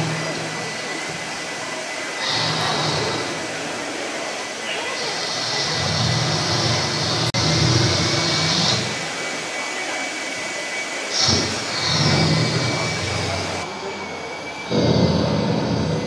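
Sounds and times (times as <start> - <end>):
hair dryer running: 0.0 - 16.0.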